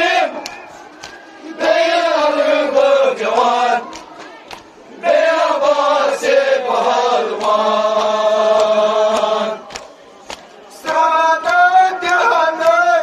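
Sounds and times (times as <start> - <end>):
men chanting a lament: 0.0 - 4.0, 5.0 - 9.8, 10.7 - 13.0
hands slapping chests: 0.4 - 1.3, 3.3 - 4.7, 7.3 - 10.5.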